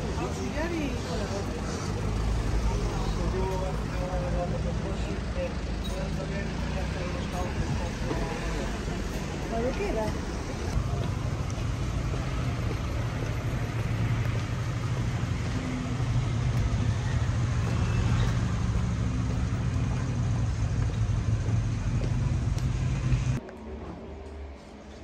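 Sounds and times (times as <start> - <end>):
street traffic hum: 0.0 - 25.0.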